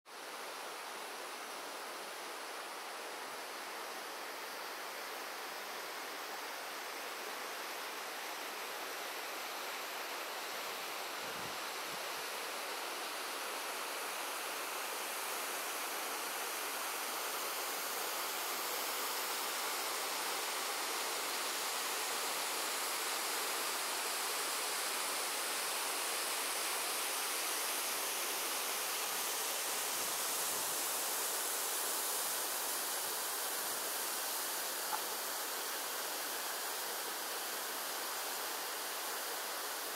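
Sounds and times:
waterfall rushing water: 0.1 - 39.9.

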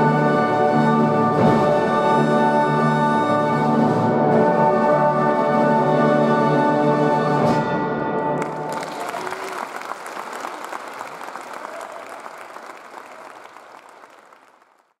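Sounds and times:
audience applauding: 8.4 - 15.0.

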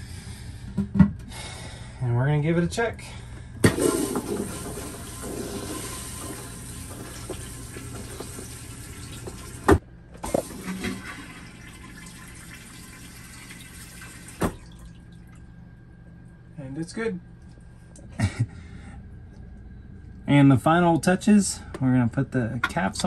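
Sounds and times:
water rushing into toilet bowl: 3.6 - 15.4.

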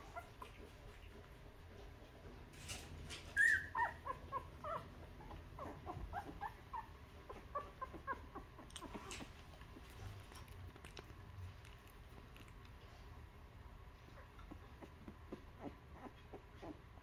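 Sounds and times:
puppies whimpering: 0.0 - 1.3, 3.2 - 10.0, 14.1 - 17.0.

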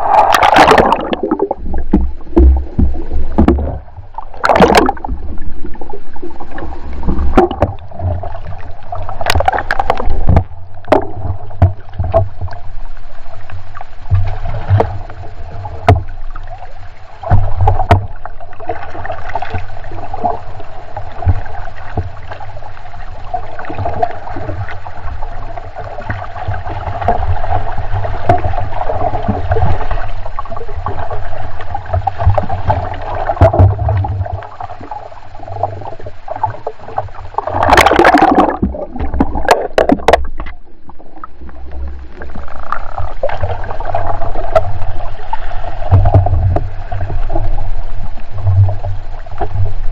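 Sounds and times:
water splashing against hull: 0.0 - 49.9.

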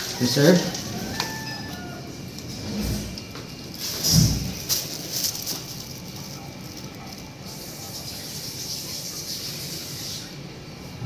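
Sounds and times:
water spraying hiss: 3.7 - 5.4, 7.4 - 10.5.

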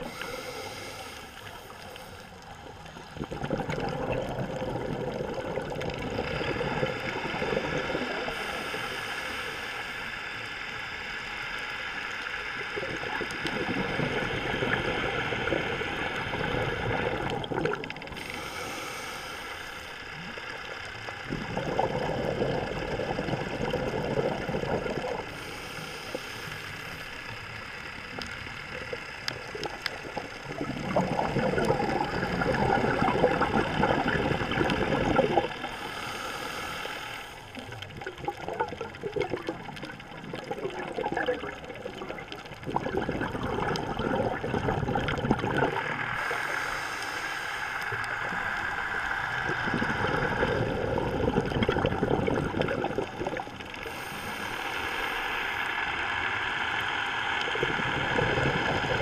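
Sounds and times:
regulator hissing inhalations: 0.0 - 2.4, 8.0 - 10.5, 18.2 - 20.3, 25.2 - 27.6, 35.5 - 37.8, 46.1 - 50.8, 53.8 - 55.9
exhaled bubbles gurgling: 0.0 - 10.0, 12.0 - 59.0.

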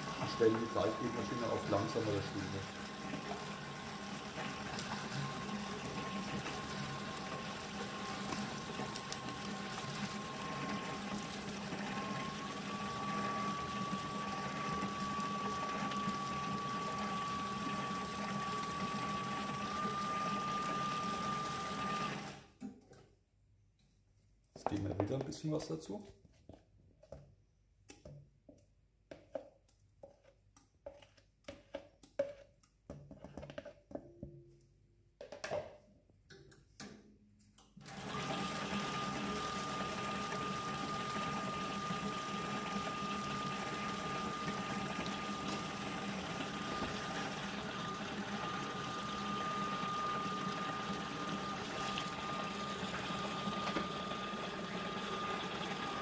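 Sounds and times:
dough mixer whining: 0.0 - 22.5, 37.8 - 56.0.

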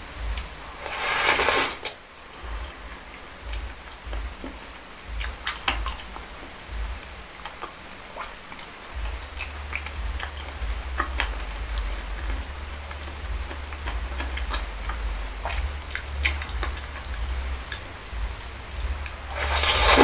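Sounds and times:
chewing mouth clicks and smacks: 7.4 - 17.9.

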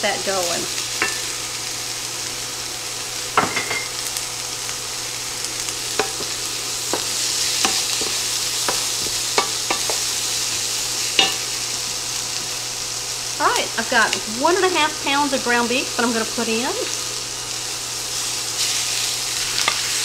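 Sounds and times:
onion sizzling in oil: 0.0 - 20.0
spatula knocking against pan: 6.0 - 10.0.

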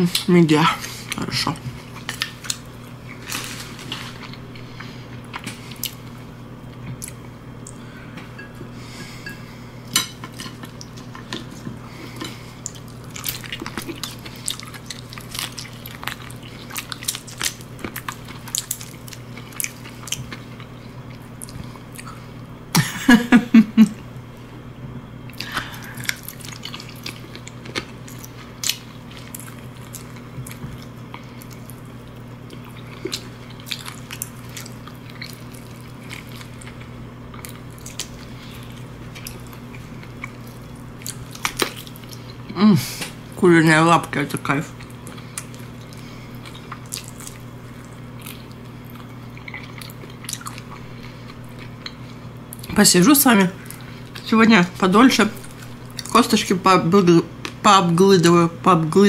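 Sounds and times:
low steady hum: 0.0 - 59.0
chewing and biting with cracks: 12.2 - 22.2, 25.3 - 42.5, 44.8 - 52.7.

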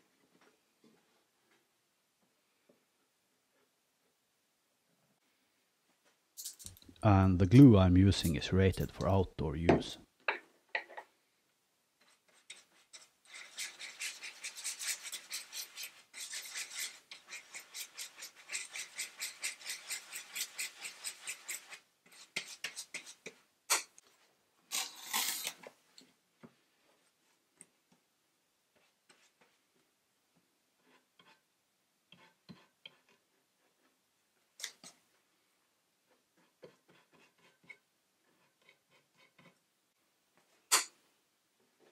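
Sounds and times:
brush scrubbing cardboard: 12.0 - 23.3.

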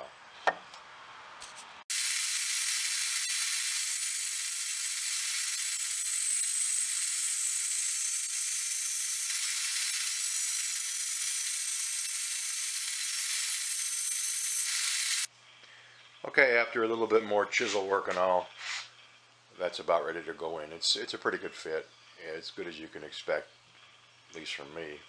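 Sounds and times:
bandsaw cutting wood hiss: 1.9 - 15.3.

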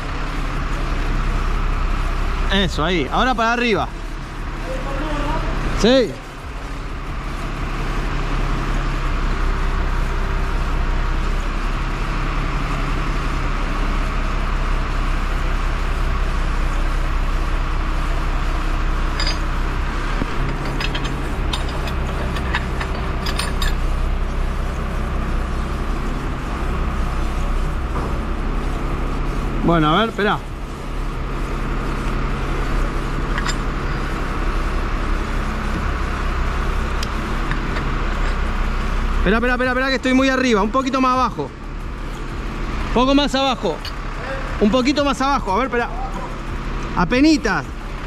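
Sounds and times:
truck engine running: 0.0 - 48.0.

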